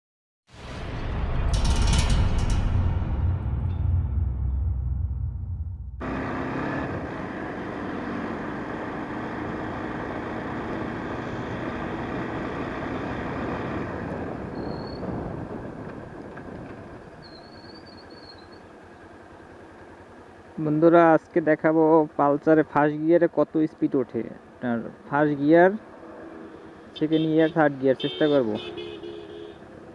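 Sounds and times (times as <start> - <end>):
wind rush: 13.4 - 17.1.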